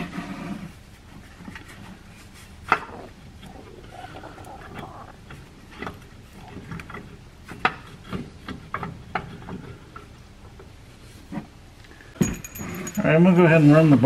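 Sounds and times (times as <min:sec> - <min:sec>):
metal parts clicking and knocking: 0:12.2 - 0:13.1.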